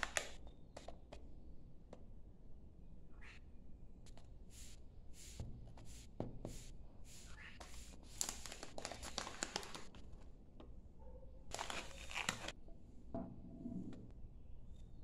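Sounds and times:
foil pouch crinkling: 0.0s - 0.4s, 7.9s - 10.2s, 11.5s - 12.5s.

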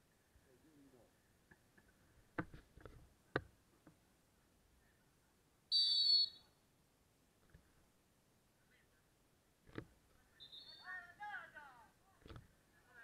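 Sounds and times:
referee's whistle blast: 5.7s - 6.4s, 10.4s - 10.9s.

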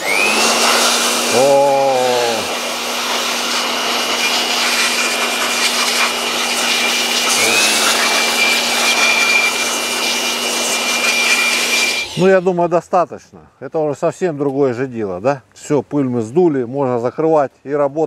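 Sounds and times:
electric air blower whining: 0.0s - 12.5s.

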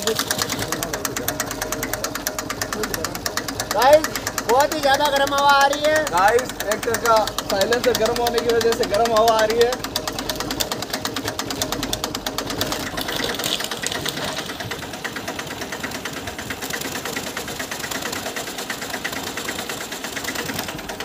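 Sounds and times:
tractor engine idling: 0.0s - 21.0s.

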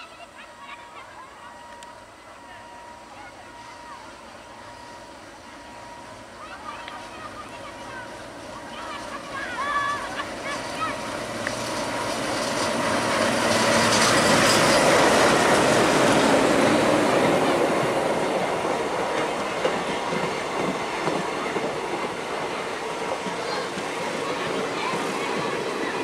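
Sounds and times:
diesel locomotive engine chugging: 0.0s - 26.0s
train wheels clickety-clack: 8.6s - 26.0s.

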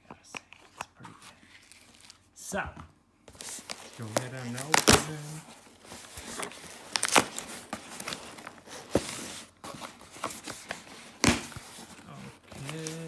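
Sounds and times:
packing tape tearing: 3.4s - 5.3s, 6.0s - 9.3s.

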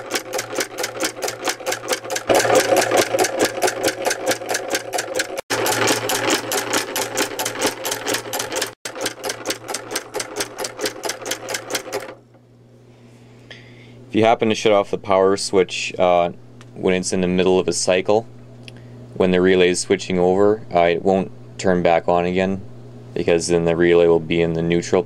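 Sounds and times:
solenoid engine clattering: 0.0s - 12.4s.

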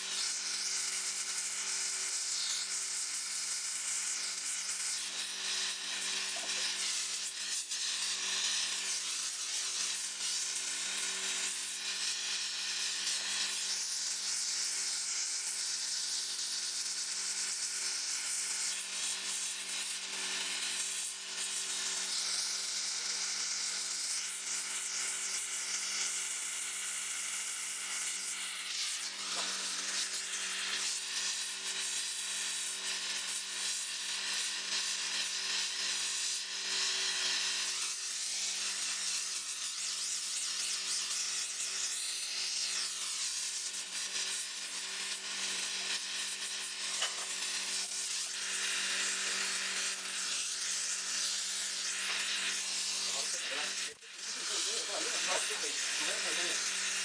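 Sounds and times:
torch flame hissing: 4.2s - 10.6s, 39.4s - 57.0s.

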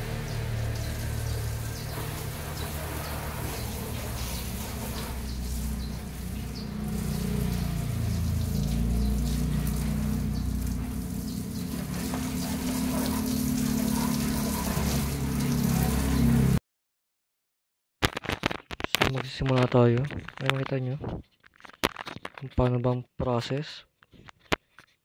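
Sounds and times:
hose water spraying on car: 0.0s - 16.6s.

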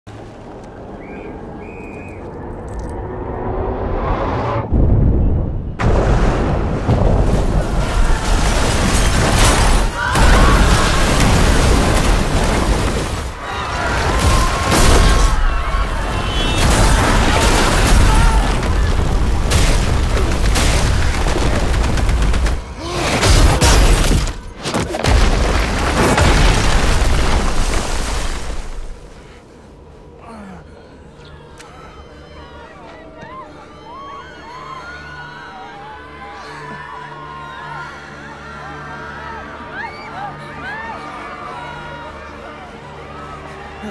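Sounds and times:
film music: 0.2s - 26.0s, 28.9s - 43.9s
deep booms and crashes: 4.0s - 13.2s.

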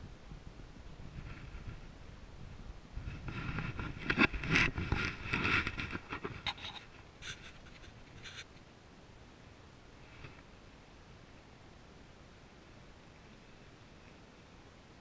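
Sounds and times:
short scratches: 3.0s - 8.6s
camera handling rustling and scraping: 3.1s - 8.6s.

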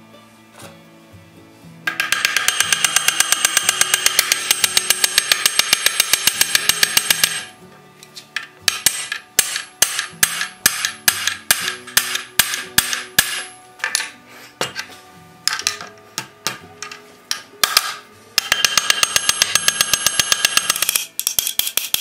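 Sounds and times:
faint background music: 0.0s - 22.0s
hammer striking metal: 1.9s - 7.5s, 8.7s - 14.8s.

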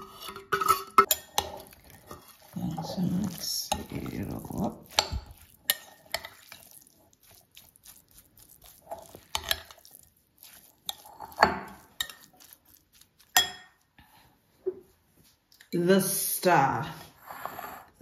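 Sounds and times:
metal spoon stirring in glass bowl: 0.0s - 13.8s.

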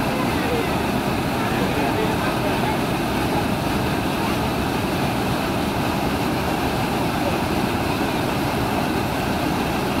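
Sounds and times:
water rushing through sluice gate: 0.0s - 10.0s.

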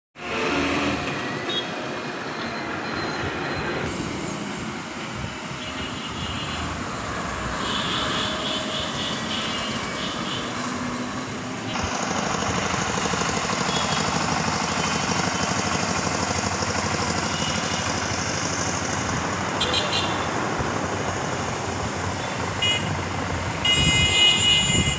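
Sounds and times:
diesel trucks passing: 0.2s - 24.9s
diesel tiller engine chugging: 11.7s - 24.0s.

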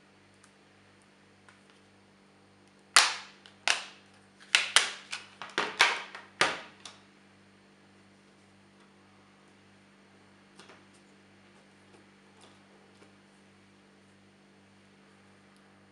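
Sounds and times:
plastic clips snapping: 3.0s - 7.0s.

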